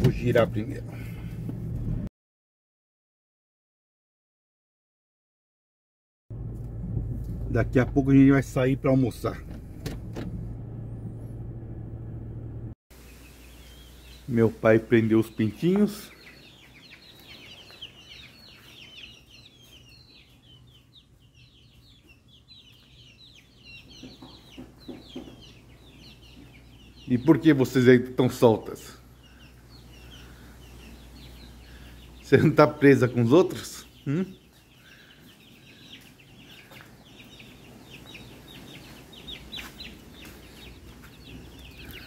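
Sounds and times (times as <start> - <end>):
baby chicks peeping: 13.0 - 42.0.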